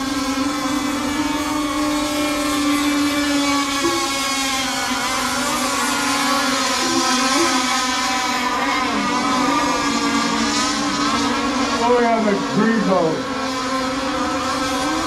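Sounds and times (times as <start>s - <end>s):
radio-controlled boat engines buzzing: 0.0s - 15.0s.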